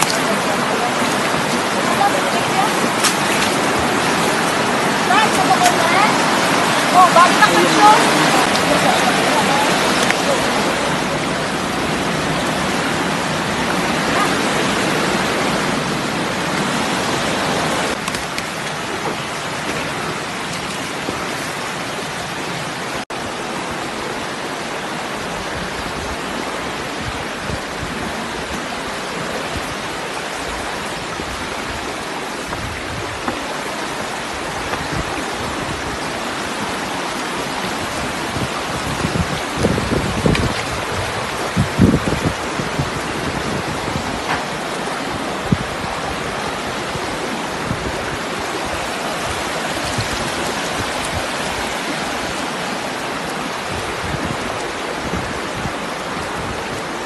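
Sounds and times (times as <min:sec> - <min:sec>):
stream water running over stones: 0:00.0 - 0:57.0.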